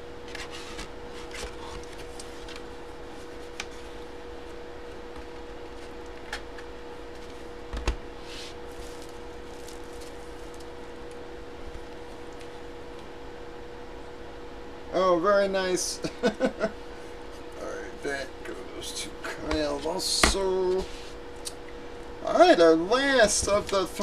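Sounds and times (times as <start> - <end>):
steady hum: 0.0 - 24.0
paper rustling: 8.2 - 10.7.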